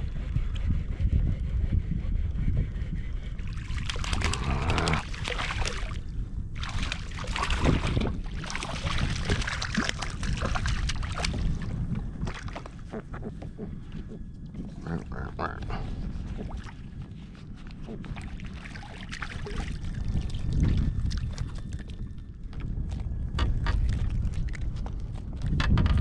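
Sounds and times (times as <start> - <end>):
wind rumble on microphone: 0.0 - 26.0
water splashing against kayak hull: 3.6 - 6.0, 6.6 - 21.9.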